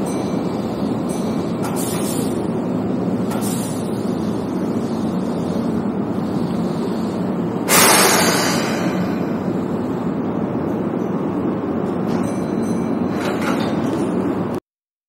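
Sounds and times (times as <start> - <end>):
train car rumble: 0.0 - 14.6
sudden loud hiss: 7.6 - 9.6.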